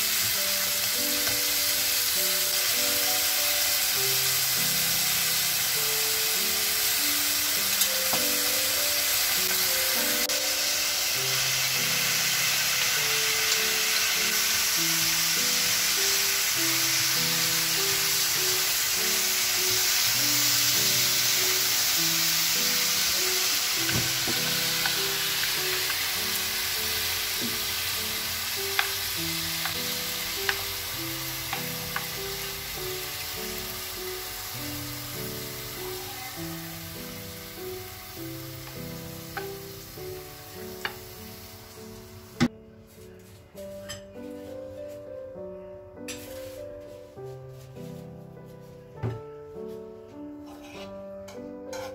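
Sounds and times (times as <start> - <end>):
food sizzling in frying pan: 0.0 - 42.5
background music melody: 0.0 - 51.9.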